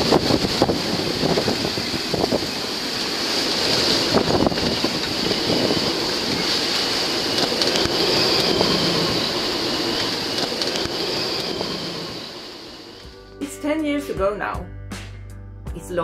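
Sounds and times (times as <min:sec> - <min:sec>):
wind buffeting microphone: 0:00.0 - 0:12.4
strong wind: 0:00.0 - 0:13.0
waves breaking: 0:00.0 - 0:13.0.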